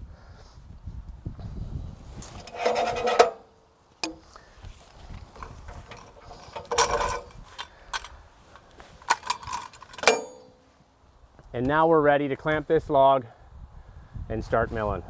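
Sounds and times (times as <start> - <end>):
metal scraping and clanking: 2.2 - 4.3, 5.4 - 8.1, 9.0 - 10.7.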